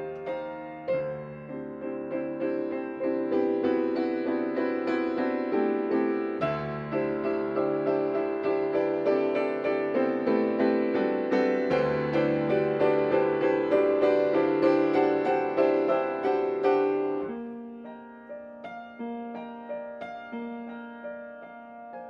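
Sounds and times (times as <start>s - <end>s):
solo piano playing: 0.0s - 22.0s.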